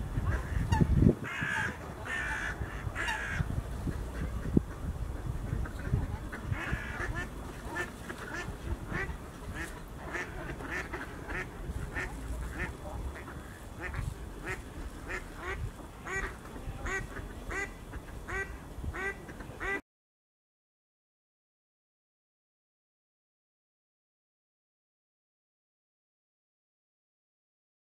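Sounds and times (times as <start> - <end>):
ducks quacking: 0.0 - 19.8.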